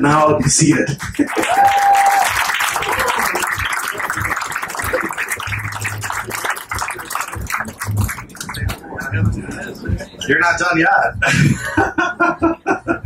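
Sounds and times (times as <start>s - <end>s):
audience applauding: 0.6s - 9.2s.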